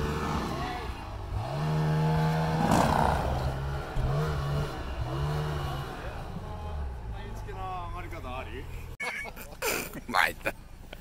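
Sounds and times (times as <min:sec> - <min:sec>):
snowmobile engine revving: 0:00.0 - 0:08.3.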